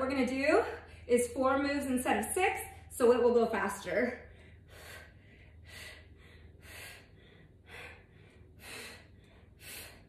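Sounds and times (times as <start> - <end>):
steady low hum: 0.0 - 10.0
woman breathing heavily: 0.4 - 1.2, 4.1 - 10.0.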